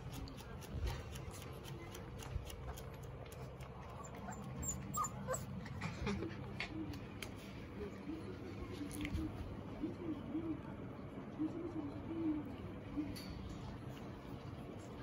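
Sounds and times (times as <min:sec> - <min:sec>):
puppies whimpering: 0:03.8 - 0:06.0.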